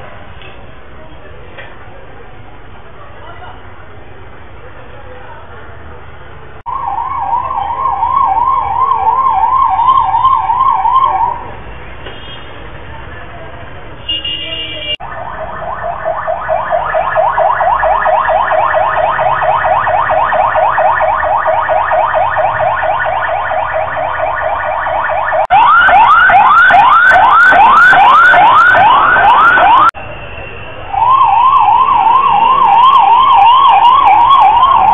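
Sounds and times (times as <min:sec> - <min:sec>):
emergency vehicle siren: 0:06.7 - 0:11.6, 0:14.9 - 0:34.9.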